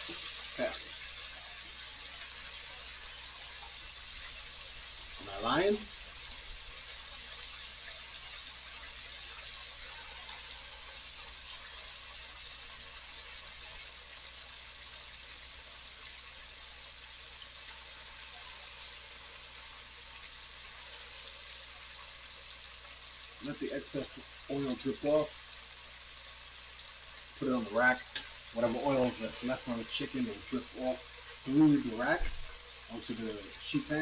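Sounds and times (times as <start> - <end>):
chicken deep-frying in oil: 0.0 - 34.0.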